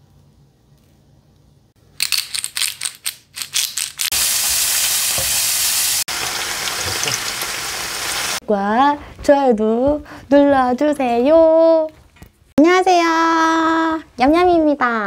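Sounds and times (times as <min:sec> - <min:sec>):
food sizzling in a pan: 0:04.1 - 0:08.4.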